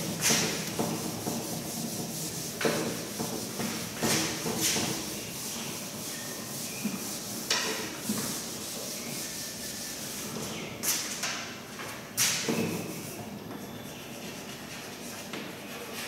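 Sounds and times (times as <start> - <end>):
duster rubbing on chalkboard: 0.0 - 10.5, 12.5 - 16.0.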